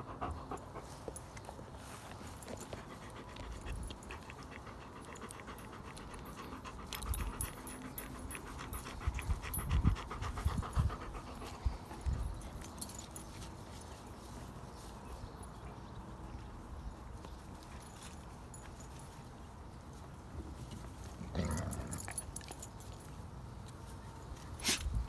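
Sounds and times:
dog panting rapidly: 0.0 - 1.3, 2.5 - 12.5.

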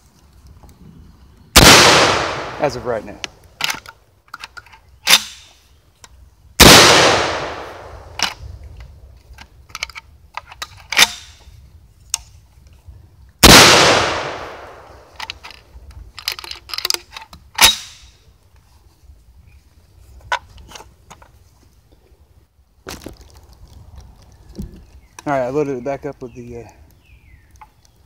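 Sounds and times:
shotgun blasts with echo: 1.6 - 3.2, 6.6 - 8.2, 13.4 - 15.1.

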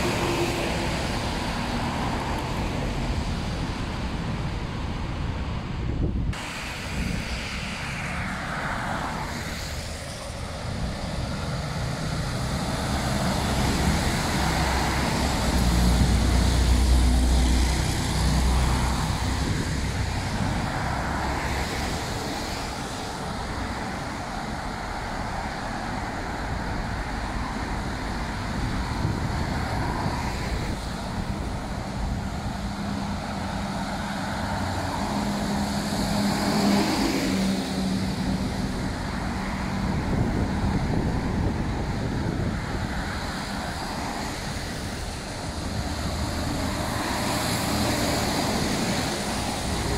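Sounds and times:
heavy truck engine drone: 0.0 - 49.9
tyres hissing on wet road: 0.0 - 49.9.

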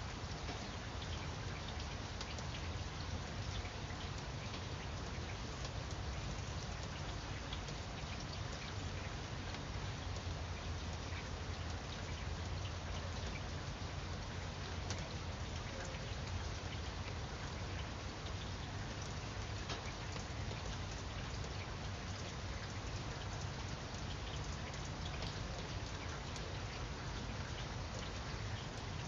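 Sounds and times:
rain falling on foliage: 0.0 - 29.0.

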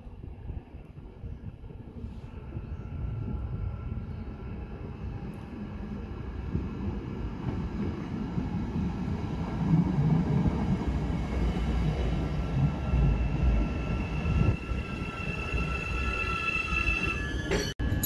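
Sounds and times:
high squeal: 13.1 - 18.0.

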